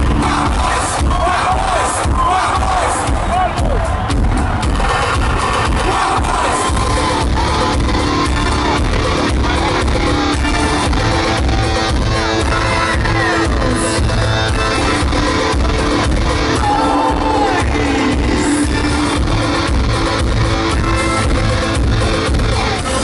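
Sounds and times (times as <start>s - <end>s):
live band music over pa: 0.0s - 23.0s
electric guitar: 4.5s - 23.0s
person singing: 8.4s - 19.6s.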